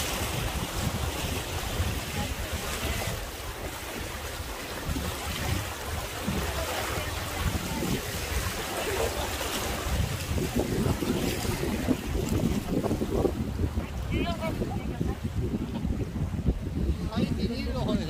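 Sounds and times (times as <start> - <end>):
river rapids rushing: 0.0 - 12.2
wind buffeting microphone: 0.0 - 18.0.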